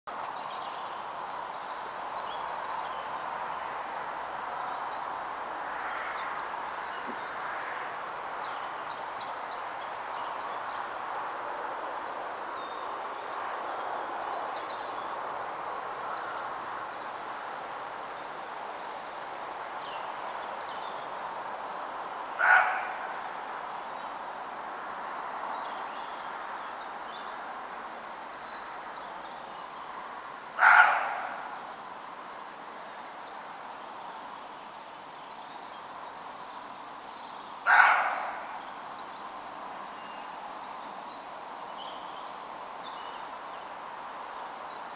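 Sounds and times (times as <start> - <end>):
woods background hiss: 0.1 - 44.9
deer barking: 22.4 - 23.0, 30.6 - 31.4, 37.7 - 38.4.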